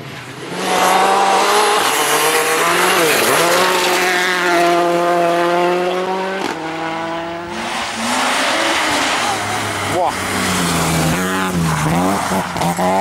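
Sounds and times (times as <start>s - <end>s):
rally car engine at high revs: 0.0s - 13.0s
tyres on gravel: 7.6s - 13.0s.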